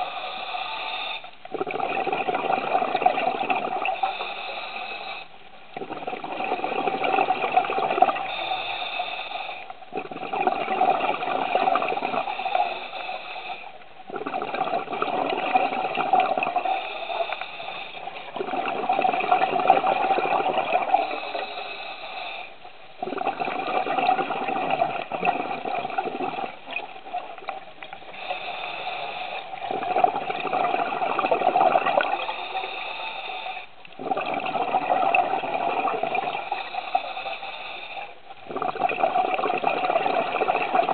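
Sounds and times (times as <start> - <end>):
exhaled bubbles underwater: 1.4 - 4.5, 5.1 - 33.2, 33.8 - 40.9.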